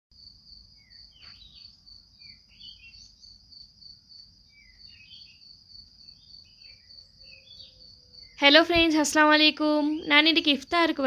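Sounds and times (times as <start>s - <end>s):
insects trilling: 0.2s - 11.0s
short bird chirps: 0.8s - 3.3s.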